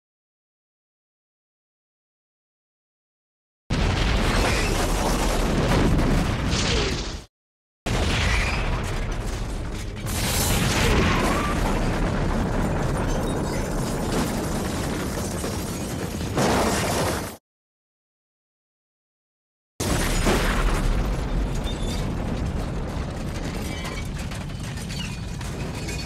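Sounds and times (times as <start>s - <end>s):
longer explosion: 3.7s - 7.3s, 7.9s - 15.4s, 19.8s - 23.6s
loud explosion: 3.7s - 7.3s, 7.9s - 15.3s, 19.8s - 24.2s.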